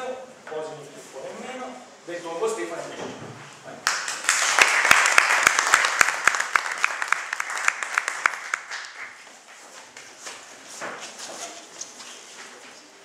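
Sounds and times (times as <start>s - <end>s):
small group applauding: 3.8s - 9.2s.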